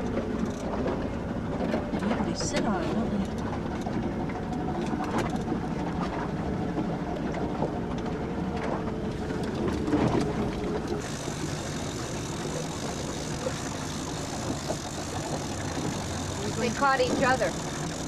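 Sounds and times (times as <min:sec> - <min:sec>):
outboard motor droning: 0:00.0 - 0:18.0.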